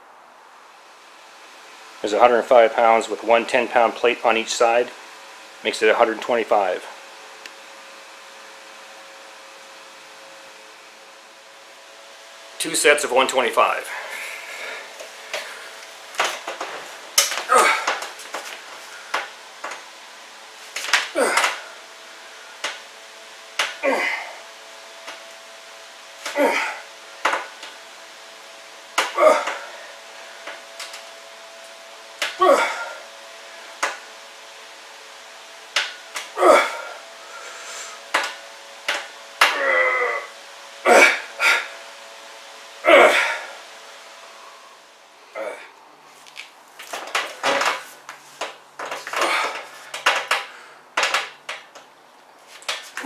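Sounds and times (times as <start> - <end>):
man grunting: 17.4 - 18.0, 21.1 - 21.8, 23.8 - 24.4, 26.3 - 26.9, 29.0 - 29.9, 32.4 - 33.0, 36.3 - 37.0, 39.4 - 41.8, 42.8 - 43.6, 45.3 - 45.8, 49.2 - 49.6.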